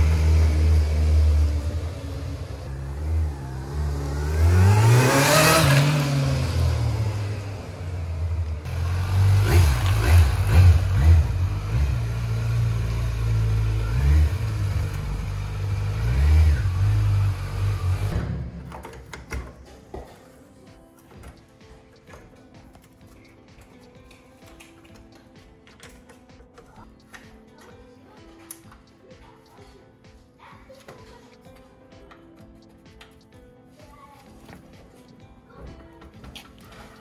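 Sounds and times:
motorcycle idling: 0:00.0 - 0:05.1, 0:05.9 - 0:18.7
motorcycle engine revving: 0:00.0 - 0:18.7.

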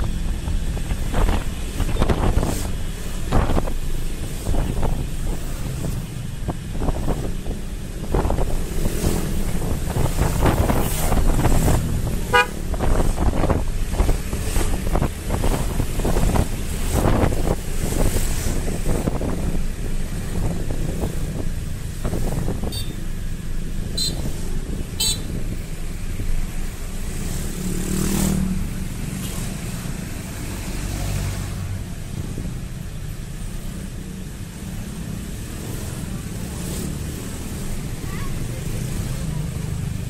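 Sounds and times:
wind buffeting microphone: 0:00.0 - 0:26.6
motorcycle engine and road rumble: 0:00.0 - 0:40.0
passing engine: 0:00.0 - 0:40.0.

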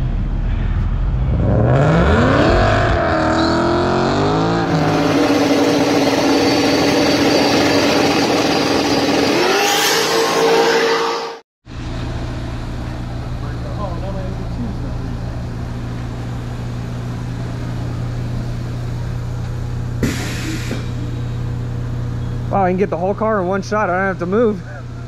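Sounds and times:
racing car engine revving: 0:01.1 - 0:11.4.

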